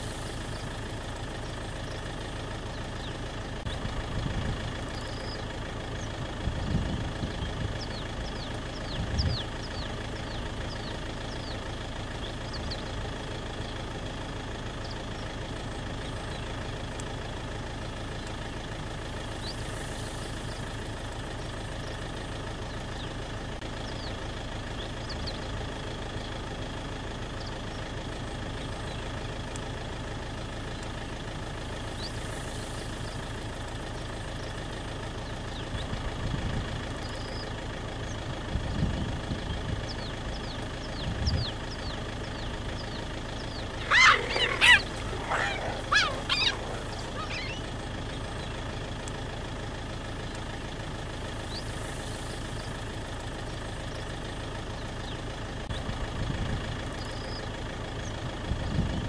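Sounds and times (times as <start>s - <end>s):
vehicle engine idling: 0.0s - 59.0s
high bird-like chirping calls: 40.0s - 48.7s.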